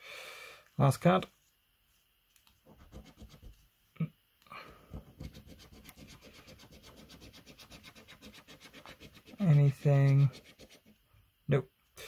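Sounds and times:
coin scratching a scratchcard: 0:02.8 - 0:03.5, 0:05.1 - 0:10.9.

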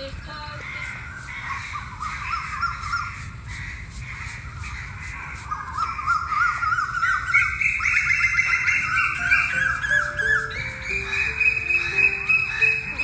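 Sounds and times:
broom sweeping concrete: 0:00.5 - 0:13.0
crows cawing: 0:00.5 - 0:13.0.

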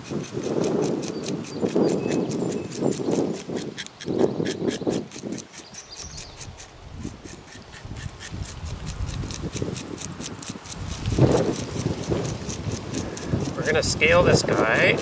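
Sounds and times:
knife scraping fish scales: 0:00.0 - 0:15.0.

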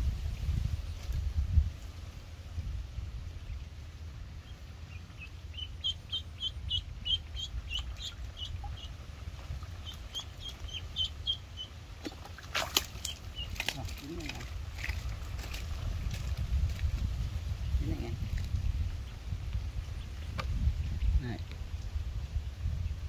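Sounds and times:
low steady rumble: 0:00.0 - 0:23.0
duckling peeping: 0:04.4 - 0:11.8, 0:12.8 - 0:14.4.

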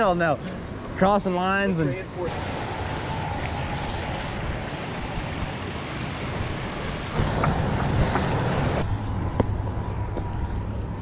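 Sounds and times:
water rushing over spillway: 0:02.2 - 0:08.8.

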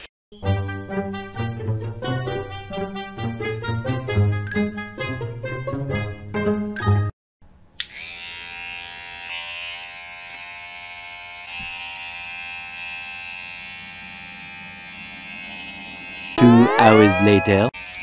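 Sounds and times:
hair clippers buzzing: 0:07.8 - 0:18.0.

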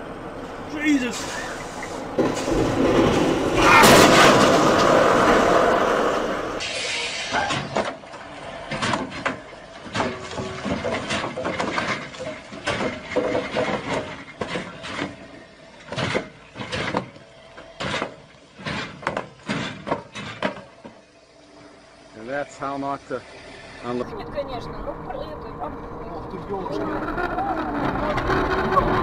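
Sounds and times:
concrete pipes clattering on ground: 0:08.7 - 0:17.2, 0:17.8 - 0:21.0.

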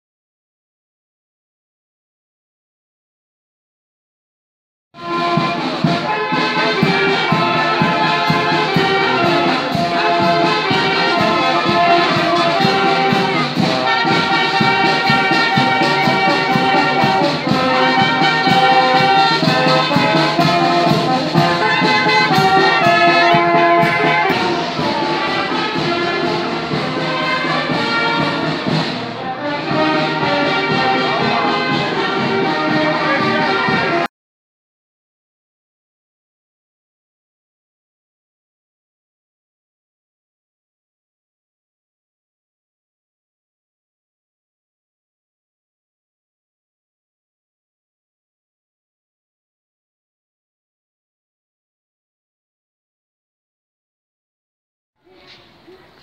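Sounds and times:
marching band playing a march: 0:05.0 - 0:34.1
steady drum beat: 0:05.0 - 0:34.1.

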